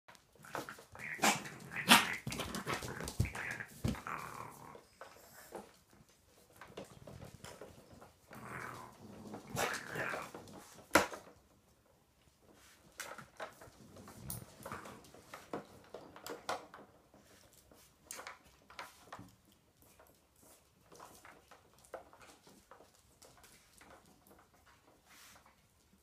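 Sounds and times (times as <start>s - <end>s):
raccoons growling: 0.3s - 5.8s, 7.9s - 10.6s.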